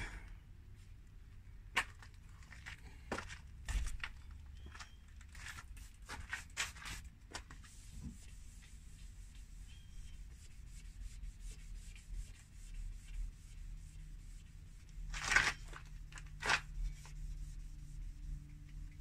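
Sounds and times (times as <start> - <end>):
sandpaper sanding plastic: 5.4 - 18.8.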